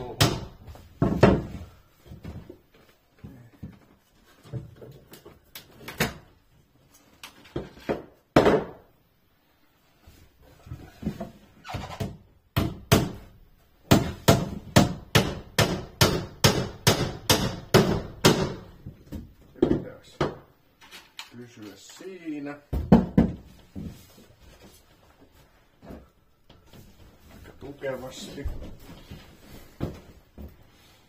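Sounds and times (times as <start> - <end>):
hammer striking nails into wood: 12.6 - 13.3, 13.9 - 18.7.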